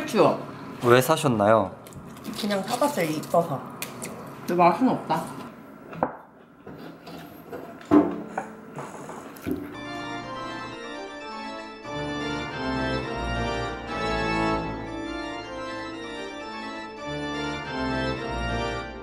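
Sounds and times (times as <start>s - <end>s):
organ-like chords with bass line: 9.8s - 19.0s.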